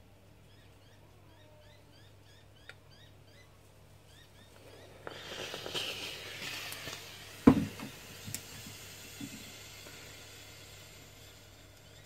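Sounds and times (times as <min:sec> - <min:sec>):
iron hissing and scuffing on fabric: 0:04.8 - 0:08.6.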